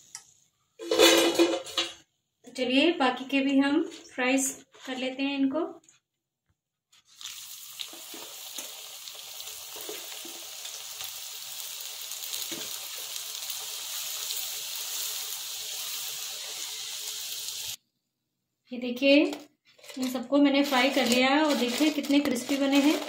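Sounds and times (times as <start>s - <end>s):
food sizzling in hot oil: 7.0s - 17.8s.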